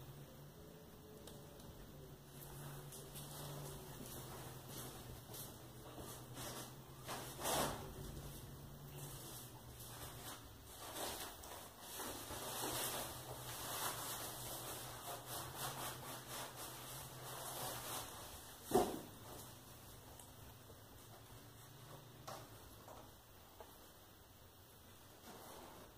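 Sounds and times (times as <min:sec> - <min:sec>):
low steady hum: 0:00.0 - 0:25.9.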